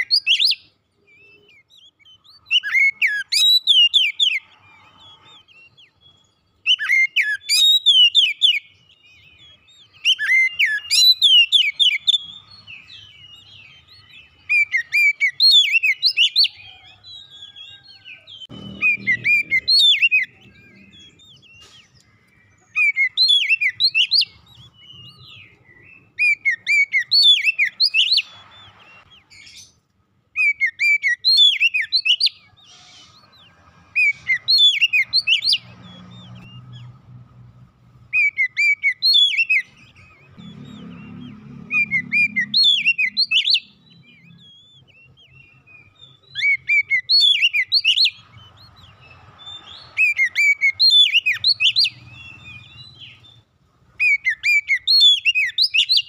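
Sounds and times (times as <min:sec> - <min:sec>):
bird singing whistled trills: 0:00.0 - 0:29.8, 0:30.4 - 0:37.0, 0:38.0 - 0:56.0.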